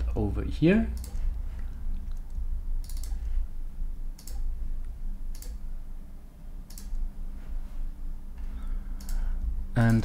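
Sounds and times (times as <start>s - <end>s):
steady low hum: 0.0s - 10.0s
computer mouse clicking: 0.9s - 3.4s, 4.1s - 5.7s, 6.6s - 7.1s, 9.0s - 10.0s.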